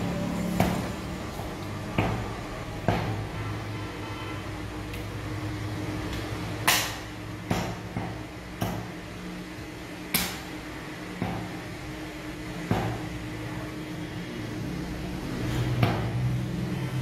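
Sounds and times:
cleaver chopping meat on wood: 0:01.8 - 0:03.3, 0:06.6 - 0:08.9.

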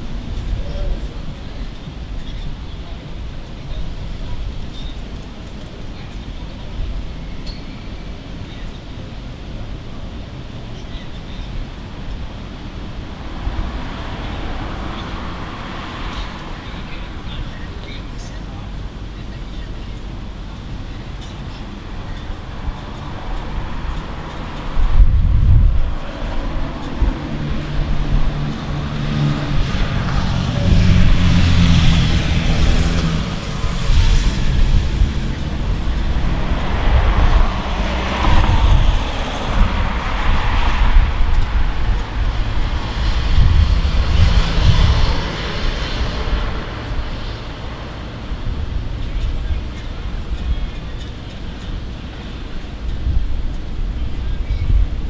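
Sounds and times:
thunder rumbling: 0:22.5 - 0:50.7.

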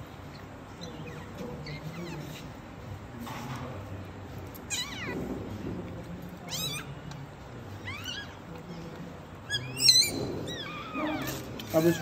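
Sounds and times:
puppy crying high-pitched squeals: 0:04.6 - 0:05.2, 0:06.4 - 0:07.0, 0:07.8 - 0:08.4, 0:09.4 - 0:12.0.

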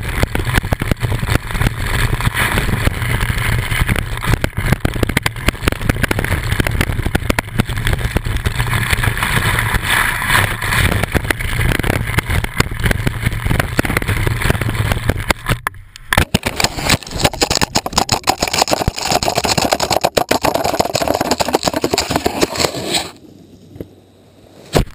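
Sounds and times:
wind buffeting microphone: 0:00.0 - 0:15.4
skis scraping over snow: 0:00.0 - 0:15.5, 0:16.3 - 0:23.2
sharp knocks and scrapes: 0:00.2 - 0:23.2.

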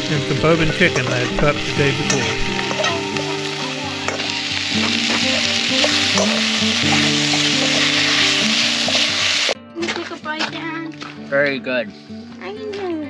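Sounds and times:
food sizzling in a wok: 0:00.0 - 0:09.6
metal spoon scraping a pan: 0:00.4 - 0:09.6.

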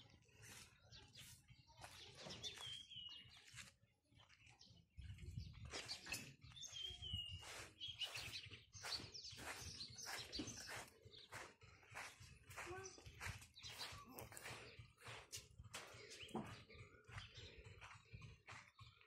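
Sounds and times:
faint bird chirps: 0:05.0 - 0:15.2.

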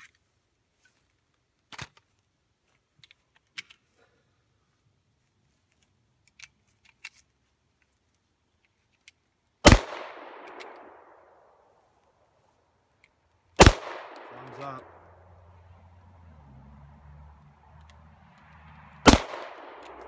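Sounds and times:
pistol shot with echo: 0:09.6 - 0:11.4, 0:13.6 - 0:15.0, 0:19.0 - 0:20.0.

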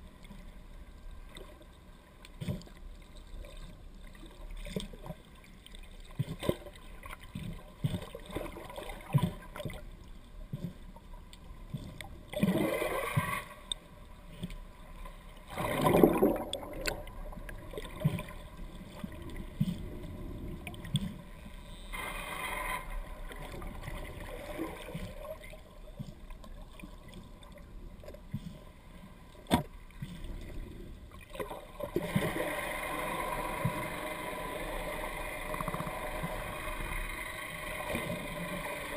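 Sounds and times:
muffled underwater water rush: 0:00.0 - 0:38.9
bubbling water: 0:15.5 - 0:18.3.

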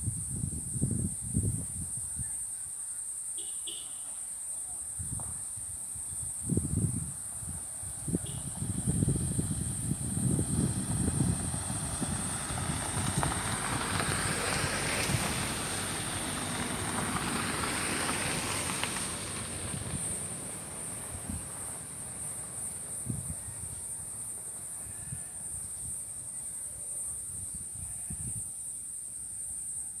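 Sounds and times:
car driving on dirt road: 0:08.2 - 0:24.7.

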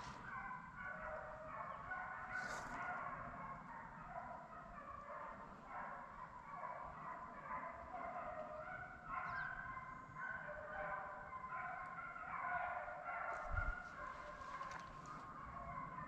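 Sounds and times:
hounds baying: 0:00.0 - 0:16.0.

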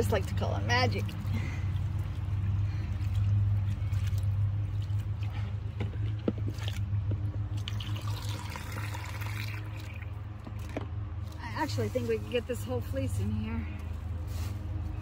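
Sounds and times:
hose filling tub with water: 0:00.0 - 0:10.8
water splashing: 0:00.0 - 0:10.8
hands squishing wet wool: 0:00.0 - 0:15.0.

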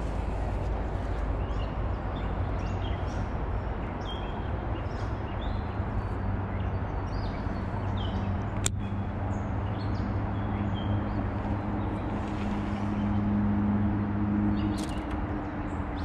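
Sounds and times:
steady low rumble: 0:00.0 - 0:03.8
small birds chirping: 0:14.5 - 0:16.0.

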